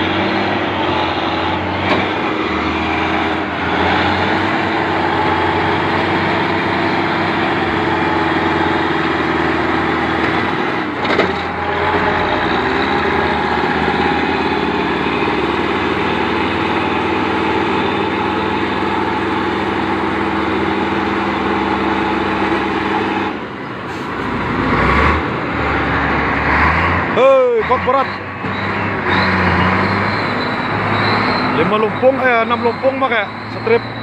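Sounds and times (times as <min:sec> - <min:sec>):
truck diesel engine under load: 0:00.0 - 0:34.0.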